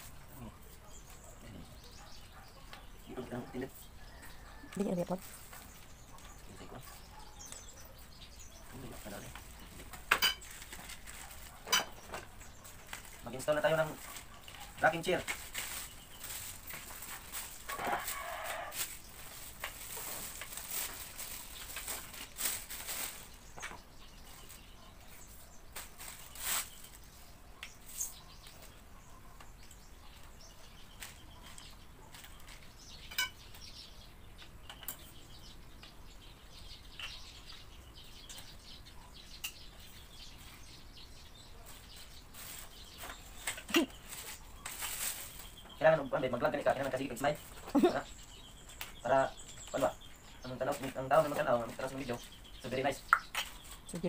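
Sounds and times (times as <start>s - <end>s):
plastic packaging rustling: 15.0s - 23.5s, 43.4s - 45.6s.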